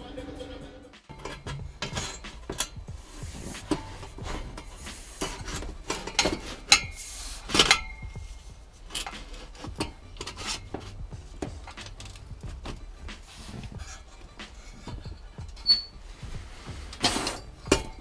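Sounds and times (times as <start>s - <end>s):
metal pipe clanking and ringing: 1.1s - 3.0s, 3.6s - 16.2s, 16.9s - 18.0s
metal exhaust pipe clinking: 1.1s - 18.0s.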